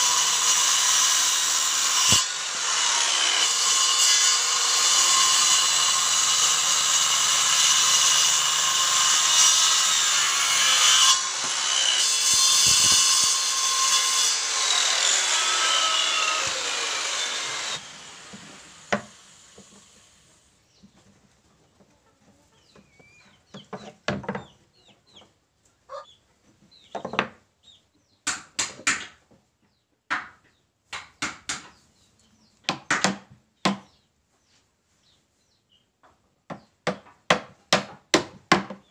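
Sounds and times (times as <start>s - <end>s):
circular saw cutting wood: 0.0s - 20.8s.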